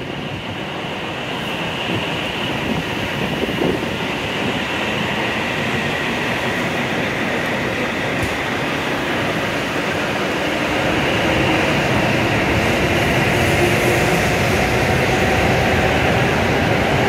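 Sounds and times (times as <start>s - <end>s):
train rumbling past: 0.0s - 17.0s.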